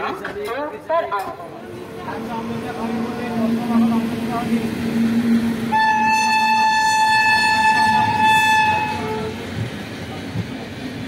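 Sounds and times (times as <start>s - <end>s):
train rumbling on rails: 1.1s - 11.0s
train horn blast: 5.6s - 9.4s.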